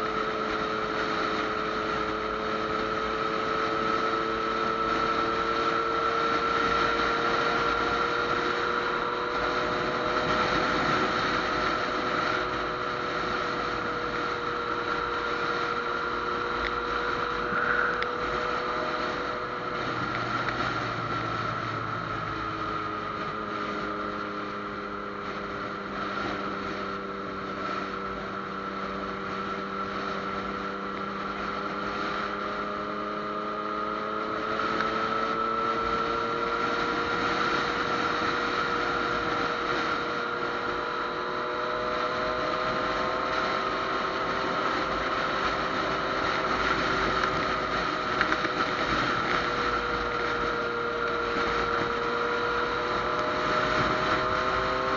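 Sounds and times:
motorcycle engine running: 0.0 - 54.9
wind rush: 9.2 - 24.0.

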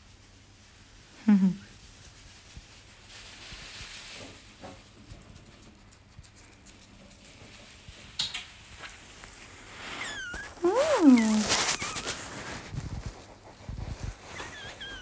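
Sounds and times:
animal scurrying over straw bedding: 1.7 - 5.0, 7.1 - 15.0.

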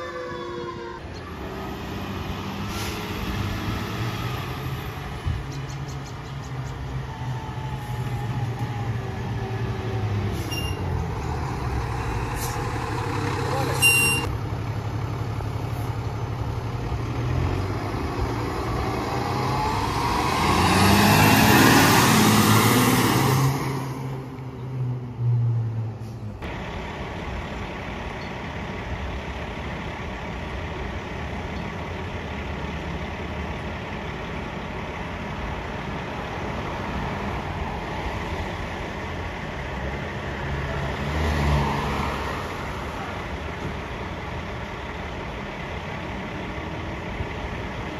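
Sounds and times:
fire engine accelerating past: 1.3 - 5.3, 6.8 - 47.9
fire engine idling: 14.3 - 17.0, 26.5 - 36.6, 42.8 - 47.9.

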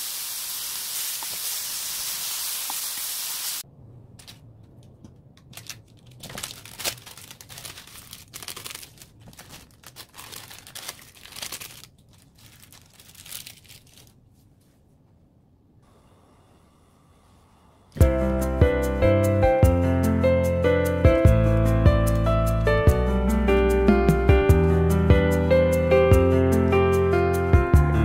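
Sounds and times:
beef sizzling on a grill pan: 0.0 - 3.6
plastic packets crinkling and tearing: 5.4 - 14.2.

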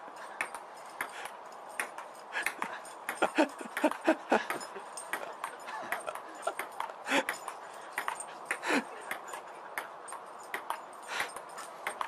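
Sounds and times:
table tennis ball clicking: 8.0 - 10.8.

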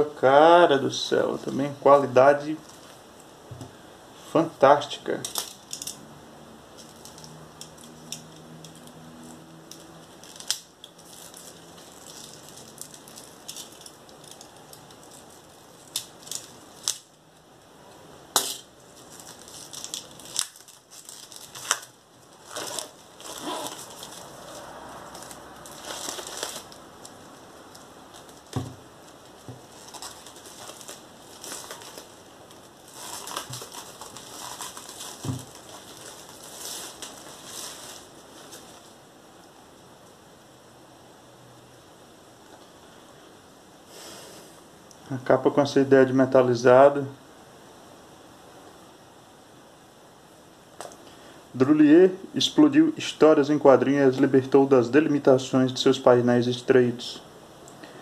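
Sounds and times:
plastic wrap crinkling and tearing: 6.8 - 17.5, 18.8 - 39.0.

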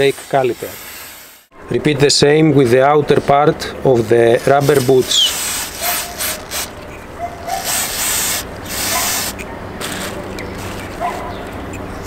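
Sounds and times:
aerosol spray hissing: 0.0 - 1.5, 4.6 - 6.7, 7.6 - 9.4.

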